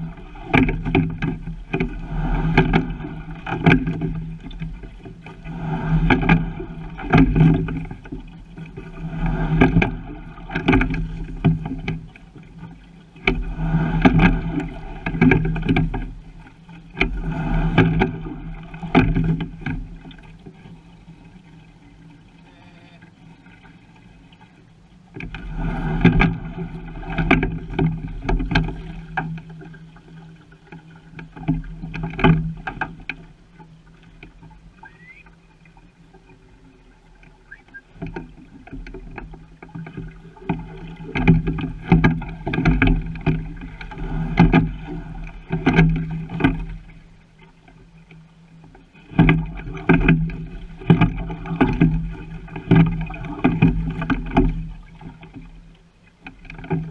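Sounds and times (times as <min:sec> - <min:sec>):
water noise from rowing: 0:00.0 - 0:56.9
knocks through boat hull: 0:00.4 - 0:04.2, 0:06.0 - 0:08.1, 0:09.5 - 0:12.1, 0:17.0 - 0:20.0, 0:38.8 - 0:44.9, 0:49.1 - 0:54.8.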